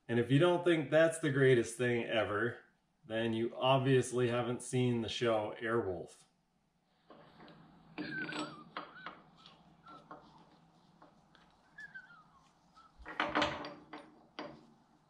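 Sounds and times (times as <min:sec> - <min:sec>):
metal clamps clinking on table: 0:08.0 - 0:09.3, 0:13.1 - 0:14.6
wavering whistle-like tones: 0:11.6 - 0:13.1.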